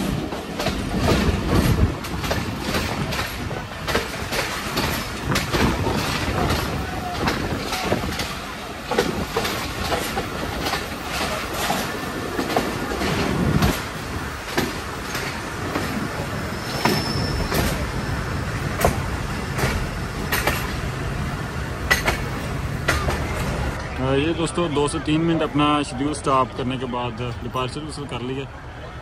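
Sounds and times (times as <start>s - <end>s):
wheels clacking over rail joints: 0.0s - 24.1s
train rumble: 0.0s - 29.0s
high wheel squeal: 16.4s - 18.1s.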